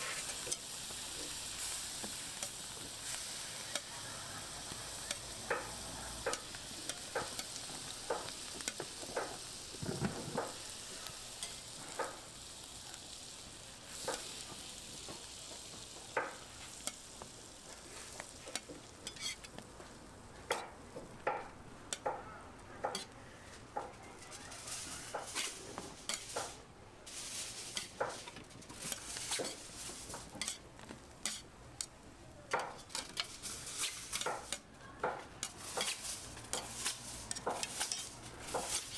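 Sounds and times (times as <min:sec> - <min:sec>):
food sizzling on a griddle: 0:00.0 - 0:38.9
metal spatulas clicking and scraping: 0:04.6 - 0:09.3, 0:11.4 - 0:12.2, 0:18.2 - 0:19.5, 0:22.9 - 0:23.2, 0:25.2 - 0:26.6, 0:30.3 - 0:30.6, 0:31.2 - 0:31.9, 0:32.5 - 0:34.7, 0:35.4 - 0:38.9.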